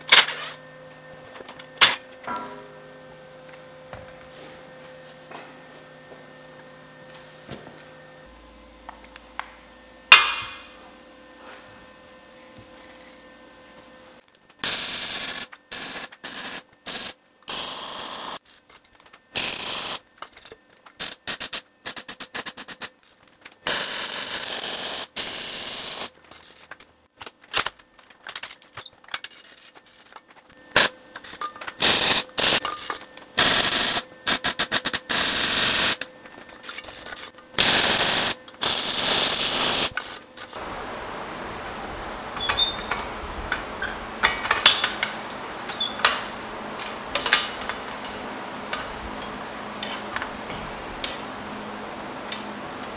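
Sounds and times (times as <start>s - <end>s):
welding arc crackling: 14.5s - 40.8s.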